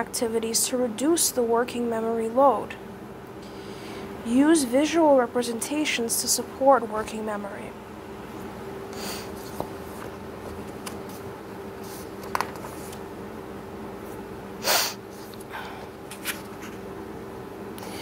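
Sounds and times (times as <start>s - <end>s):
steady hum: 0.0s - 18.0s.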